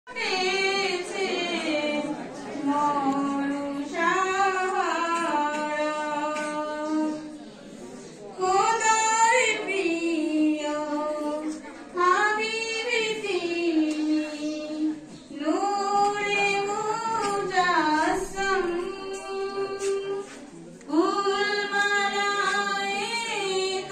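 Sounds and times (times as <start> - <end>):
woman singing unaccompanied: 0.1 - 7.4, 8.4 - 20.3, 20.9 - 23.9.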